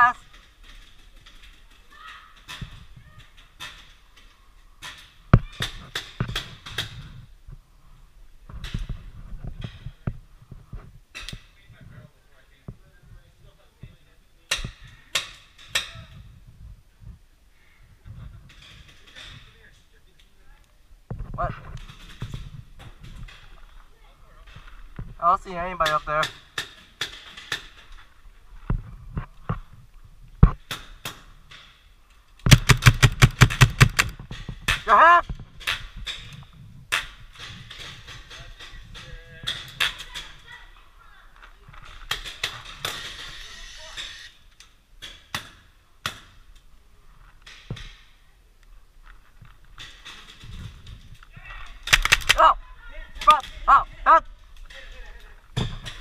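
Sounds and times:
paintball markers firing: 32.5s - 34.8s, 51.8s - 52.4s
paintball gun pops: 51.9s - 52.4s.

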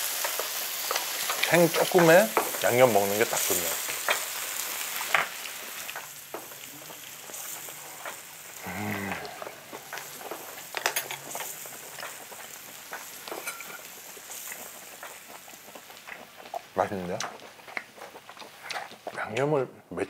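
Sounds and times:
meat sizzling on hot plate: 0.0s - 19.5s
person humming: 8.6s - 9.6s.

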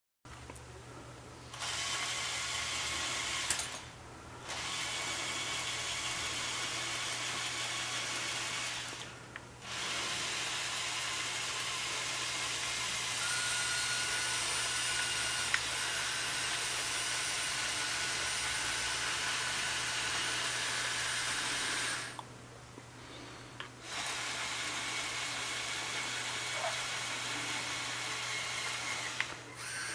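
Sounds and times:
toy electric motors whirring: 1.5s - 22.2s, 23.8s - 29.9s.

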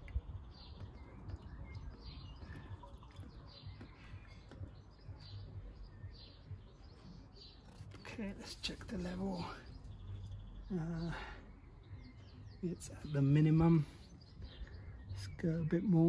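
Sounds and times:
liquid pouring from plastic bottle: 0.0s - 4.8s.

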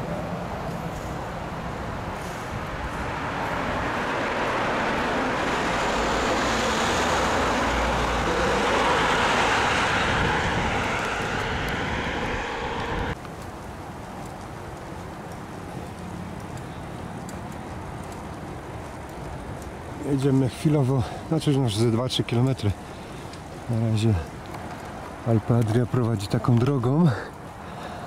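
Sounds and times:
passing vehicle: 0.0s - 13.2s.

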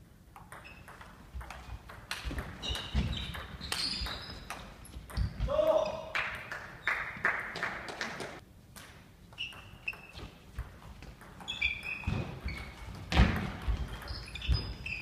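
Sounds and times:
shoe squeaks: 0.6s - 1.0s, 2.3s - 6.1s, 9.3s - 10.5s, 11.4s - 15.0s.

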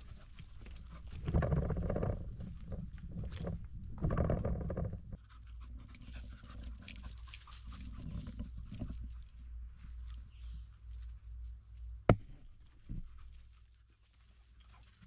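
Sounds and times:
microphone handling rumble: 1.1s - 5.2s.

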